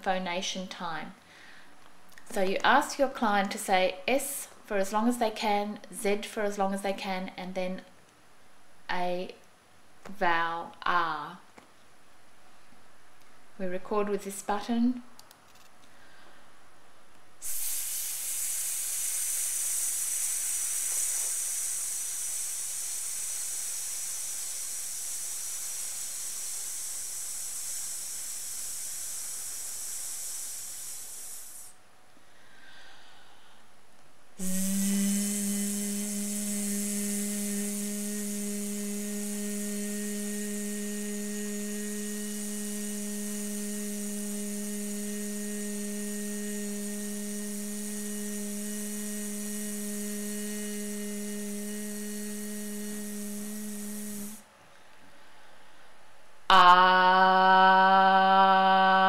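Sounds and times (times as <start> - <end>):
woman's sustained hiss: 17.4 - 31.8, 34.4 - 54.5
woman's sustained voiced buzz: 17.4 - 33.6, 34.4 - 54.5, 56.5 - 59.0.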